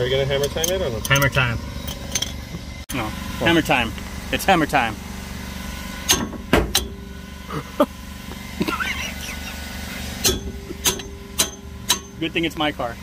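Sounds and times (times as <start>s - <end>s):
steady low hum: 0.0s - 13.0s
hammer striking metal wrench: 0.4s - 2.4s, 6.1s - 7.0s, 10.2s - 12.2s.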